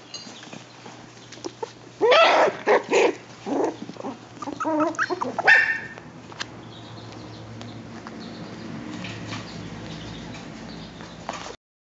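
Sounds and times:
puppies yipping and barking: 0.5s - 6.1s
puppy yelping: 1.4s - 6.1s.

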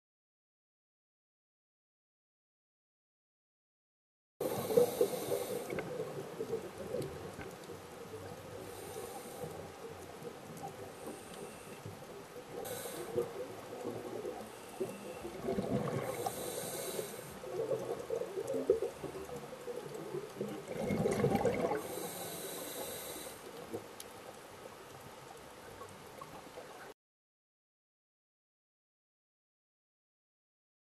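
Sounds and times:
diver breathing through regulator: 4.4s - 6.0s, 8.5s - 9.9s, 10.9s - 11.9s, 12.5s - 13.5s, 15.8s - 17.7s, 21.6s - 23.6s
steady watery hiss: 4.4s - 26.9s.

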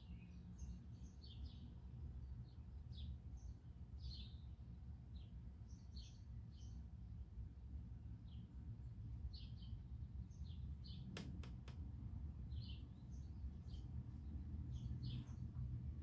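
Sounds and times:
small birds chirping: 0.0s - 7.1s, 8.2s - 16.0s
low background rumble: 0.0s - 16.0s
sharp clicks: 11.1s - 11.8s.

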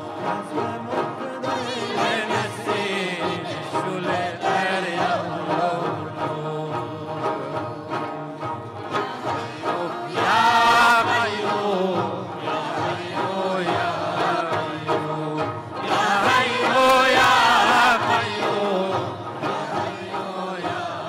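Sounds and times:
people singing devotional song: 0.0s - 21.0s
frame drums beating: 8.0s - 21.0s.

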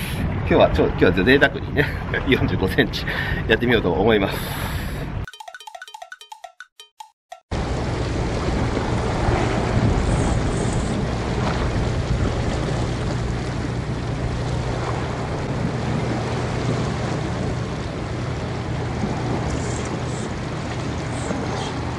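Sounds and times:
wind against microphone: 0.0s - 3.4s, 7.8s - 21.9s
sea: 0.0s - 5.3s, 7.5s - 21.9s.

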